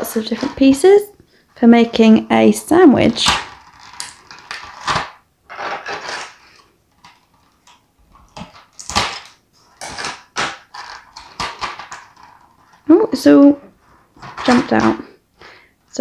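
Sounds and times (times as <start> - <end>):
plastic tray crinkling: 0.0 - 1.1, 1.7 - 15.2
plastic pieces popping out: 3.0 - 12.9, 14.2 - 15.1.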